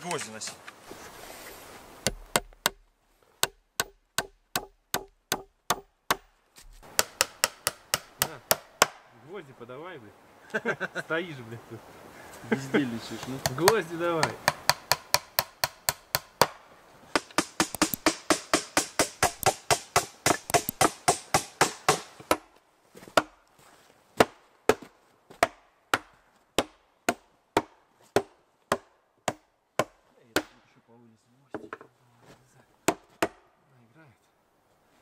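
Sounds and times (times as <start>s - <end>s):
hammer driving nails into wood: 3.4s - 9.0s, 13.4s - 22.5s.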